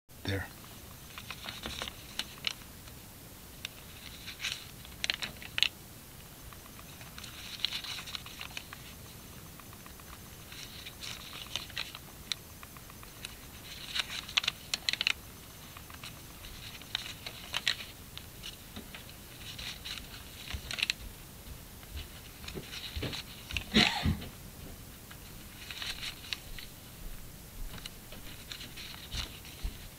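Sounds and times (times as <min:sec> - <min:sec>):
thin paper pages turning: 0:01.1 - 0:02.6, 0:03.6 - 0:05.8, 0:06.7 - 0:21.0, 0:22.0 - 0:23.7, 0:25.5 - 0:26.7, 0:27.8 - 0:29.9.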